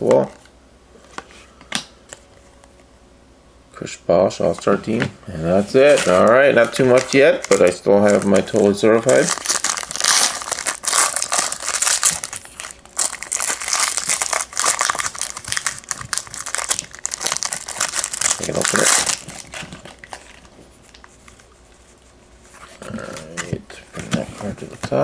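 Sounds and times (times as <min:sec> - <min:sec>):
foil wrapper crinkling and tearing: 0:05.8 - 0:21.1.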